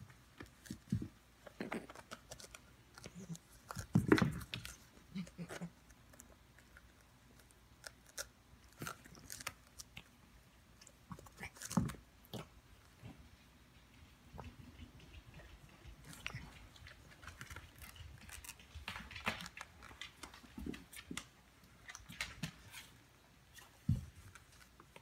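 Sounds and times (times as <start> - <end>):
cat chewing a tennis ball: 0.4 - 20.0.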